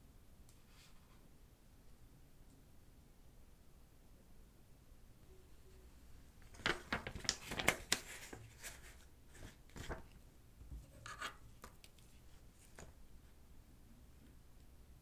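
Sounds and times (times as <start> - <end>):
soft taps and rustles: 6.6 - 13.0.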